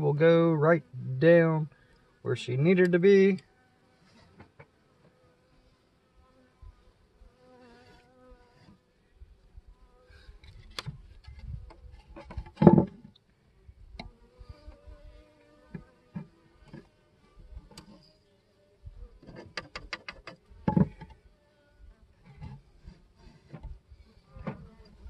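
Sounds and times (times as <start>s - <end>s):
wooden clicks and knocks: 10.8s - 13.1s, 19.2s - 21.2s.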